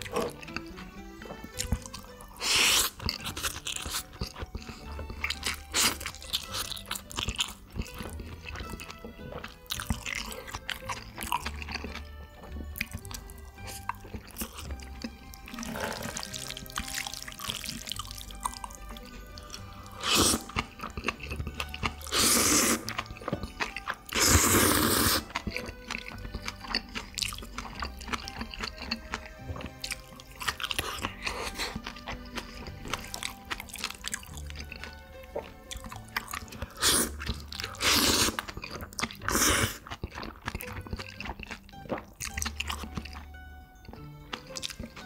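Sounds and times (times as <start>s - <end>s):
background music: 0.0s - 45.0s
person chewing noodles: 0.0s - 45.0s
wet mouth clicks: 12.8s - 43.3s, 43.9s - 45.0s.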